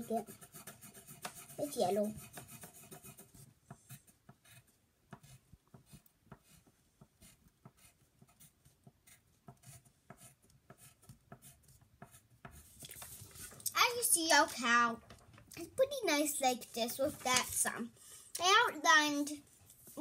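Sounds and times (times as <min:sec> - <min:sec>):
colouring strokes on paper: 0:00.0 - 0:14.7.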